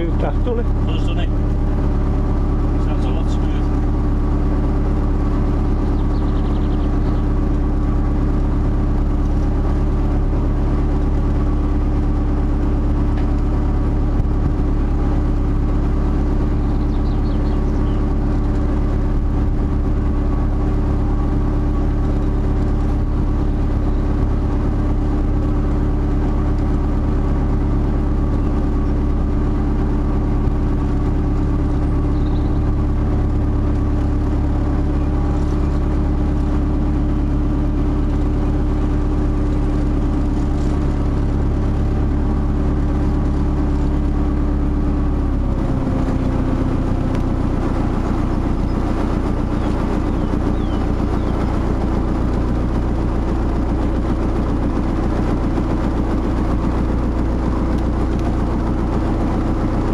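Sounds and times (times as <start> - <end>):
diesel boat engine running: 0.0 - 59.9.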